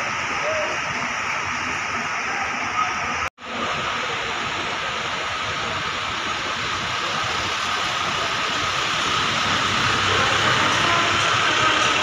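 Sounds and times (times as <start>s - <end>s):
truck engine running: 5.8s - 12.0s
rain on wet pavement: 6.8s - 12.0s.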